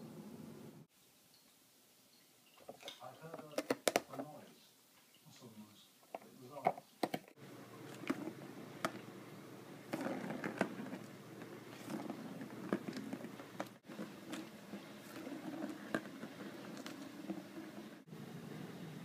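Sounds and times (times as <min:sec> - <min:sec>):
plastic ball rattling in track: 0:09.9 - 0:11.1.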